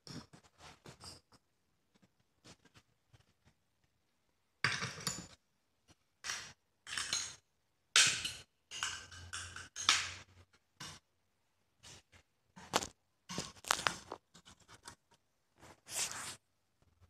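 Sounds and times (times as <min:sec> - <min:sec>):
glass and metal clinks and scrapes: 0:06.9 - 0:07.4.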